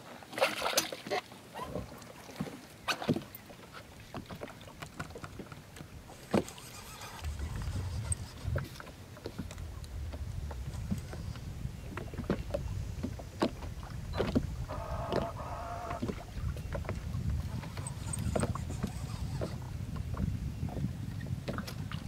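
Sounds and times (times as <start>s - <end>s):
fishing rod and reel clicks: 6.2s - 8.8s, 17.7s - 19.6s.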